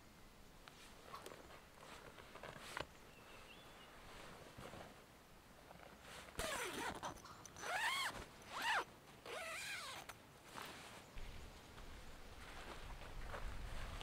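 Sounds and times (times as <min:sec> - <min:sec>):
zipper being pulled: 0:06.2 - 0:10.2.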